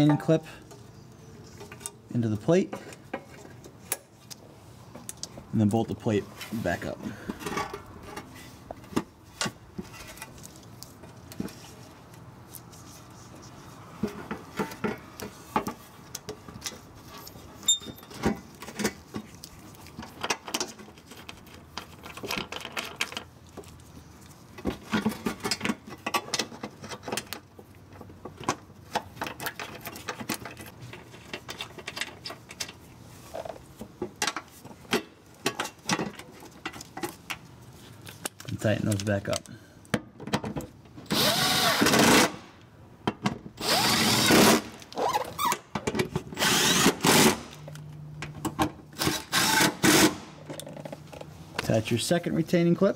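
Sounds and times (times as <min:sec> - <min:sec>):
hands handling plastic wiring loom: 0:02.7 - 0:40.7.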